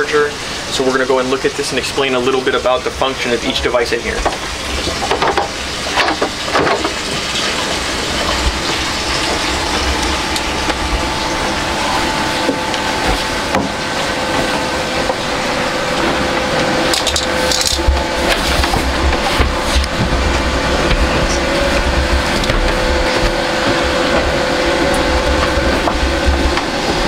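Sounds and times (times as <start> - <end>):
faint hum: 7.0 - 27.0
steady rushing noise: 7.7 - 27.0.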